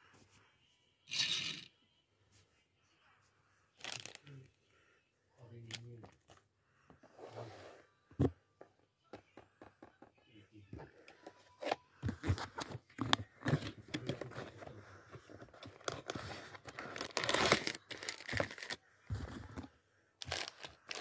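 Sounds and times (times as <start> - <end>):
packaging crackling and tearing: 15.7 - 18.8, 20.2 - 21.0.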